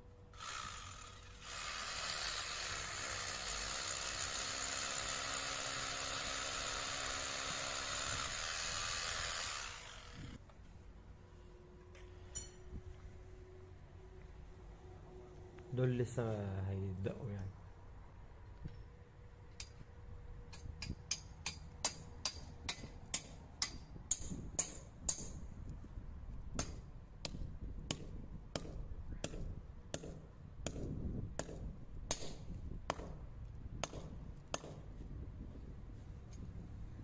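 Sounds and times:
hammer striking a nail: 20.8 - 25.4, 26.6 - 33.2, 33.8 - 34.9.

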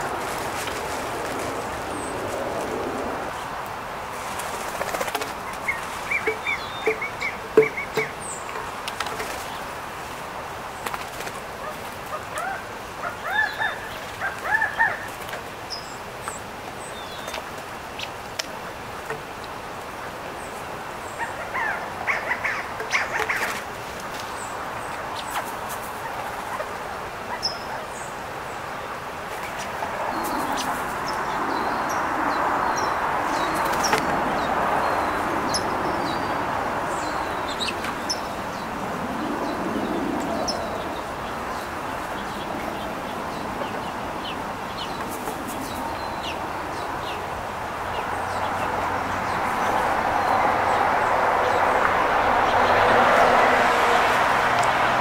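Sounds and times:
steady rushing noise: 0.0 - 27.3, 27.9 - 55.0
small birds chirping: 4.4 - 9.8, 20.3 - 51.8.

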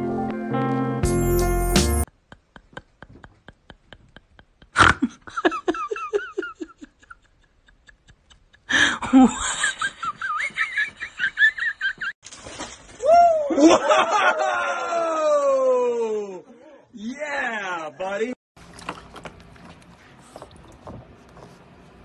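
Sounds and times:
person laughing: 2.2 - 12.2.

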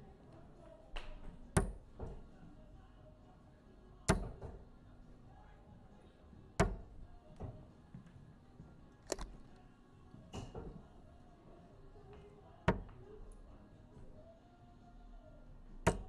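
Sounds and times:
darts thudding into dartboard: 1.0 - 2.2, 4.1 - 4.6, 6.6 - 7.6, 12.7 - 13.0.

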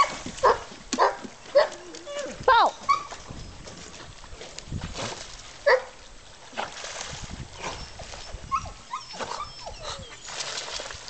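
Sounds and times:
dog yelping: 0.0 - 3.2, 7.7 - 10.3
dog whining: 7.6 - 10.4.

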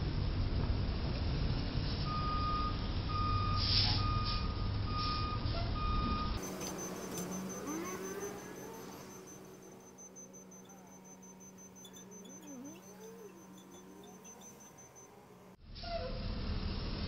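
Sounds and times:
low traffic rumble: 0.0 - 17.0
truck reverse alarm beeping: 2.0 - 15.6
short hiss: 3.6 - 4.4.

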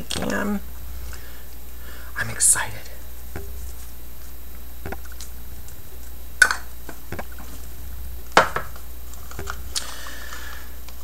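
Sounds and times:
stick knocking against cup: 3.3 - 3.6, 4.8 - 5.2.

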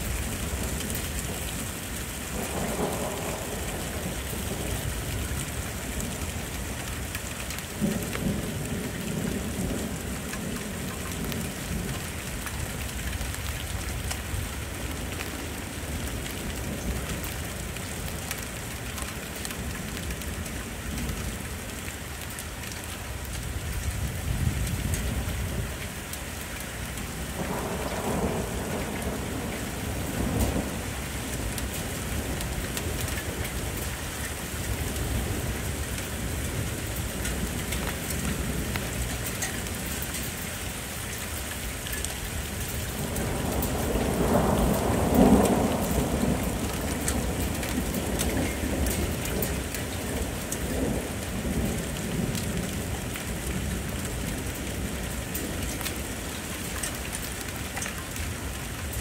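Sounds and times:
steady rain: 0.0 - 59.0
rolling thunder: 2.3 - 6.1, 27.2 - 33.8, 42.9 - 56.1.

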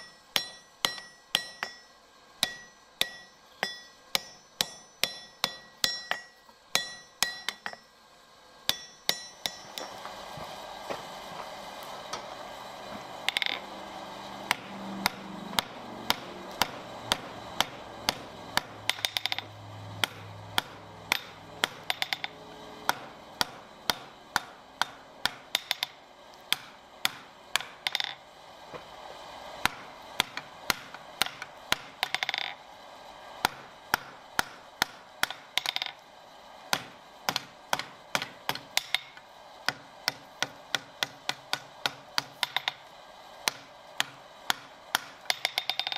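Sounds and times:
hammer striking steel on anvil: 0.0 - 7.9, 8.7 - 10.2, 12.9 - 13.7, 14.4 - 28.2, 29.6 - 32.5, 33.4 - 36.0, 36.7 - 45.9.

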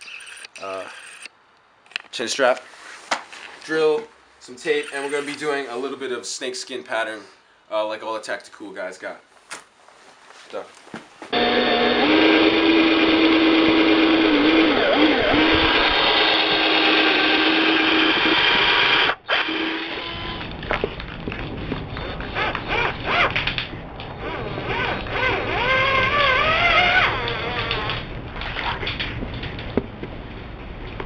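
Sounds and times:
cordless drill whining: 11.3 - 20.5, 24.7 - 28.0.

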